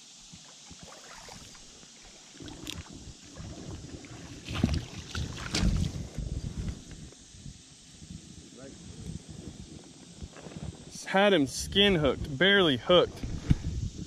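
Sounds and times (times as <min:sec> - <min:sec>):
water splashing: 0:00.5 - 0:06.1
footsteps in water over gravel: 0:03.4 - 0:06.0.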